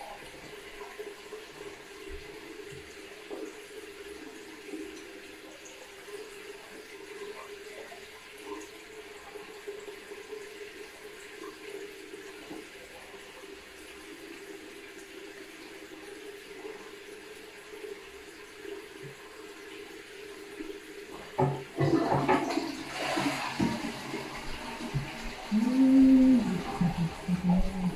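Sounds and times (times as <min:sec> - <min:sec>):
running water: 0:00.0 - 0:27.9.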